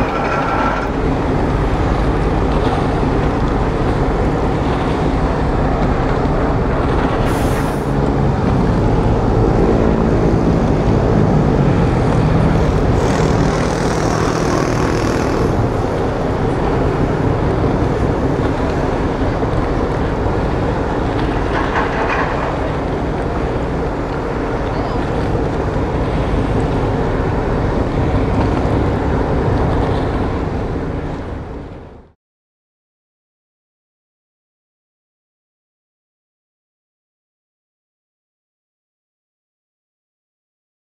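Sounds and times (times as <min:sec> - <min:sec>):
ferry diesel engines rumbling: 0:00.0 - 0:32.0
droning hum: 0:00.0 - 0:32.1.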